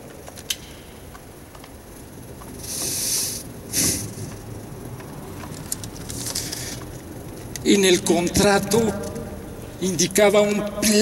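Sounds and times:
hissing bursts: 2.6 - 4.3.

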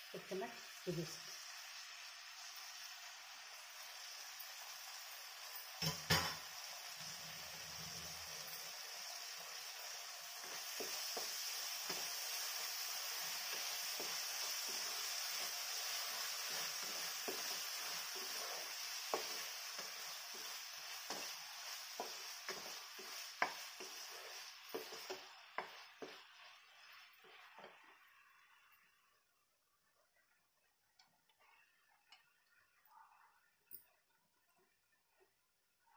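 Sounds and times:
vegetables sizzling in a pan: 0.0 - 29.4
spatula knocking and scraping pan: 10.4 - 12.3, 13.5 - 27.9.

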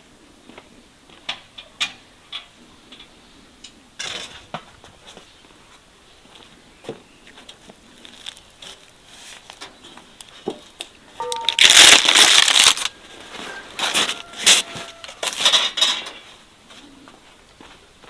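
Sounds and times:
bread crust crunching: 11.6 - 12.9.

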